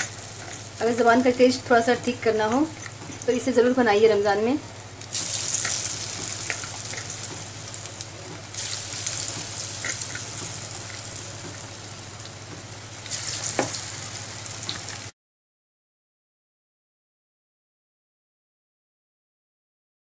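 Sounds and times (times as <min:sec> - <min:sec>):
food deep-frying in hot oil: 0:00.0 - 0:15.2.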